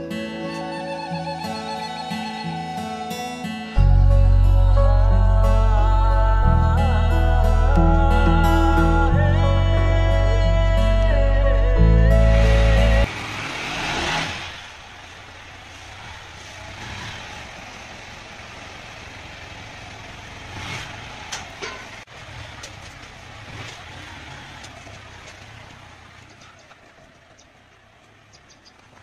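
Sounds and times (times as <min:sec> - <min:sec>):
motorcycle engine running: 0:15.1 - 0:29.0.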